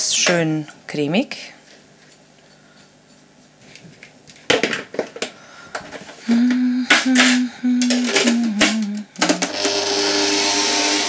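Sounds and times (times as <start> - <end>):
plastic bowl knocking and clattering: 4.5 - 5.3
stand mixer motor humming: 9.2 - 11.0.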